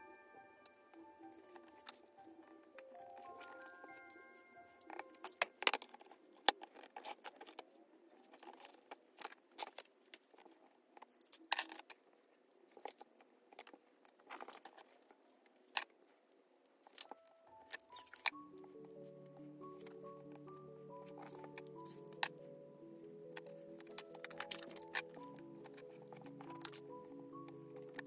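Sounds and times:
plastic sleeves crinkling: 0:00.6 - 0:10.6, 0:16.8 - 0:28.0.

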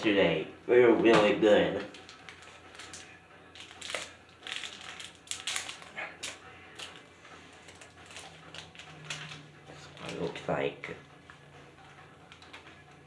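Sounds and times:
chocolate wrapper crinkling: 0:01.8 - 0:10.5.

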